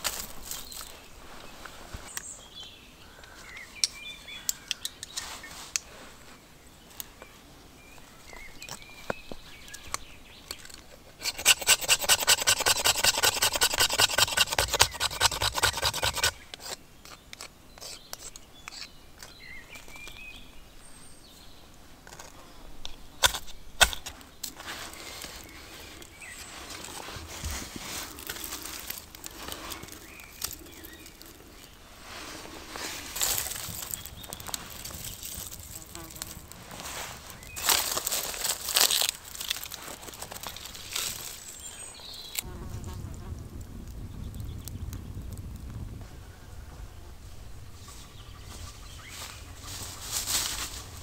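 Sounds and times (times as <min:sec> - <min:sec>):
hand saw rasping through wood: 0:11.2 - 0:16.8.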